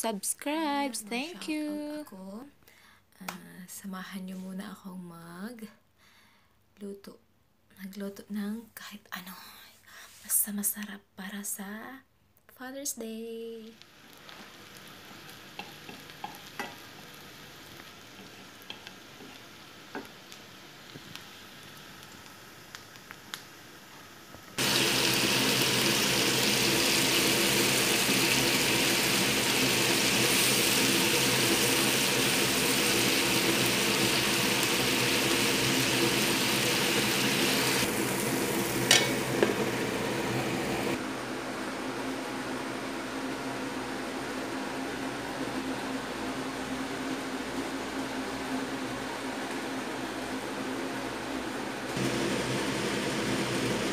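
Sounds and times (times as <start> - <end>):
onion frying quietly: 13.0 - 53.9
tomatoes sizzling loudly: 13.4 - 41.0, 51.9 - 53.9
metal lid clanking onto pan: 38.9 - 39.5.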